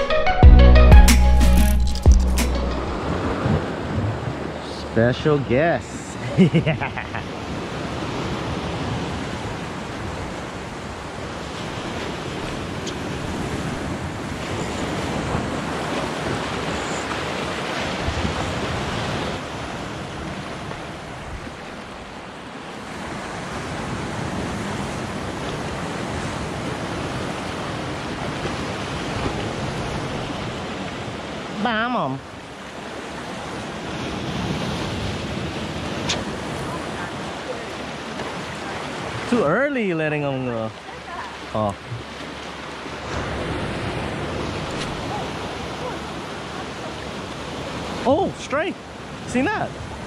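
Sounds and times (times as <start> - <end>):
ocean surf breaking on rocks: 2.8 - 50.0
wind on microphone: 2.9 - 4.6.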